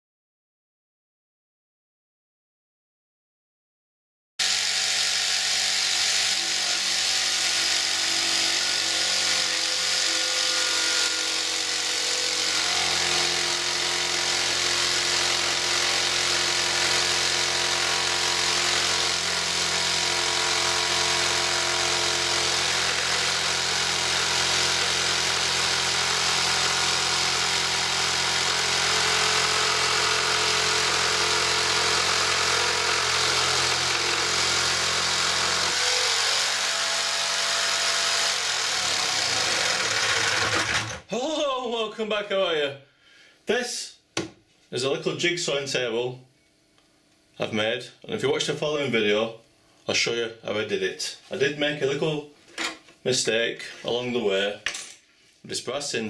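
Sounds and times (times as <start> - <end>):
jigsaw sawing through brass: 4.4 - 41.1.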